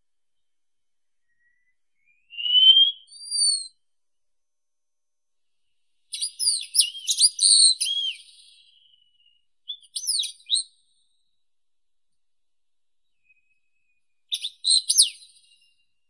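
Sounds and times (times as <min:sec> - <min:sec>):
bird whistling and twittering: 0:01.2 - 0:03.8, 0:06.1 - 0:10.8, 0:14.3 - 0:15.8.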